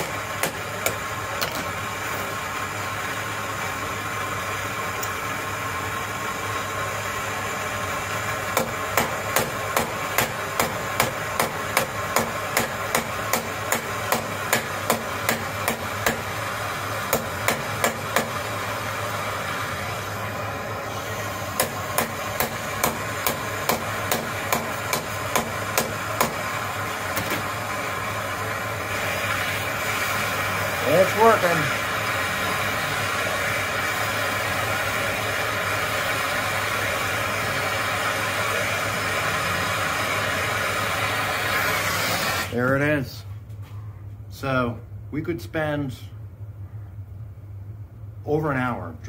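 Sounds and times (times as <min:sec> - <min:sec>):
gas torch hissing: 0:08.1 - 0:42.6.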